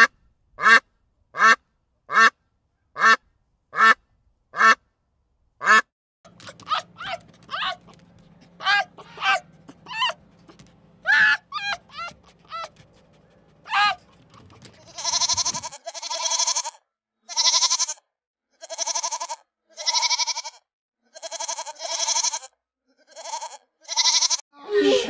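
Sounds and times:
goat bleating: 5.7s - 13.0s, 13.6s - 24.4s.

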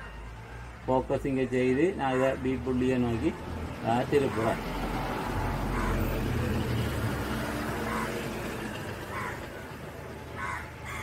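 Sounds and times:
motor vehicle passing by: 2.3s - 11.0s.

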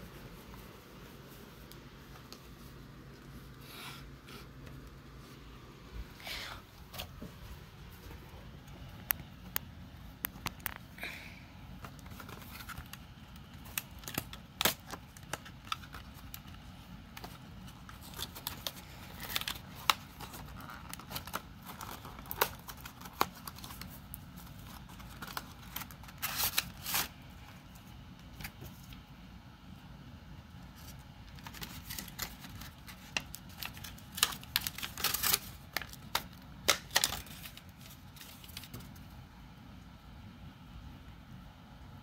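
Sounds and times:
packaging crinkling: 11.8s - 28.9s, 30.8s - 39.0s.

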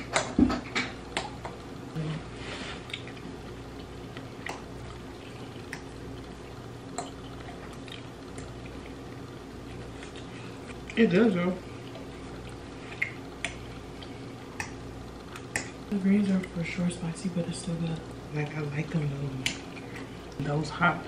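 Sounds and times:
wet chewing and mouth noises: 0.0s - 16.6s, 18.0s - 20.4s
steady low hum: 0.0s - 21.0s.

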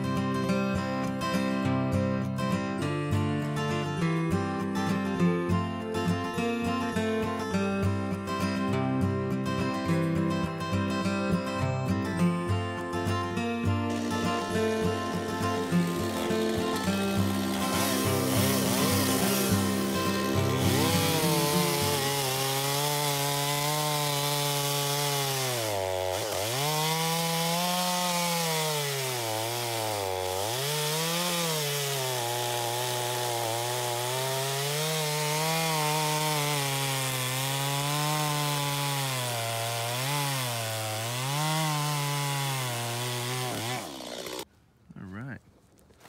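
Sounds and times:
chainsaw cutting log: 13.4s - 44.5s.

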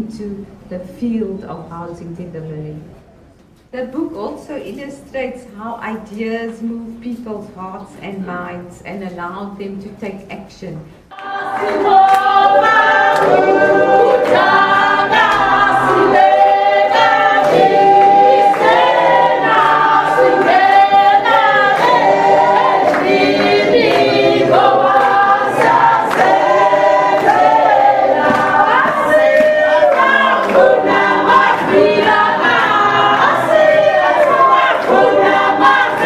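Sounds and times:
crowd singing in chorus: 11.1s - 36.0s
hand clapping: 11.1s - 36.0s.

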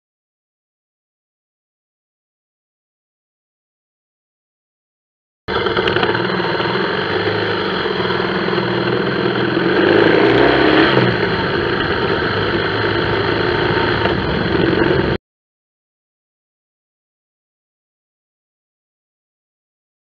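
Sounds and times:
motorcycle engine running: 5.5s - 15.2s.

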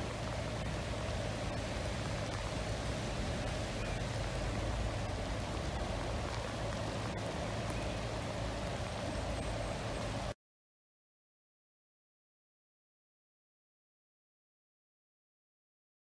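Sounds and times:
rain falling: 0.0s - 10.4s
river rushing: 0.0s - 10.4s.

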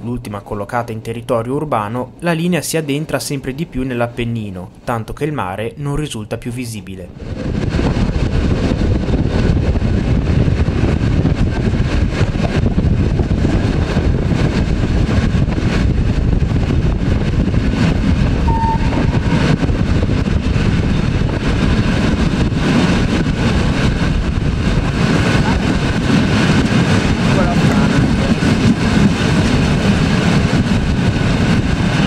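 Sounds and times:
electric train running: 7.2s - 32.0s.

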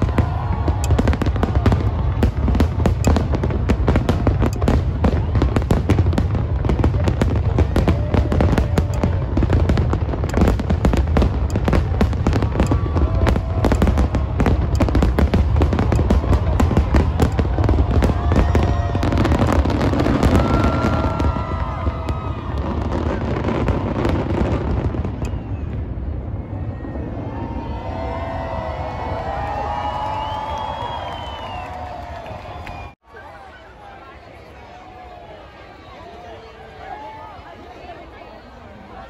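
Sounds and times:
fireworks bangs and crackles: 0.0s - 32.3s
crowd cheering: 0.0s - 39.0s.

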